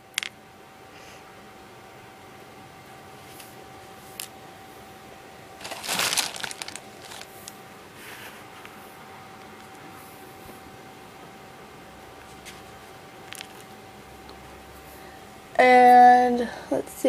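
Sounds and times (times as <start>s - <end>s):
plastic beads clicking: 0.1s - 0.3s, 5.6s - 7.3s
rustling crackling burst: 5.6s - 7.4s.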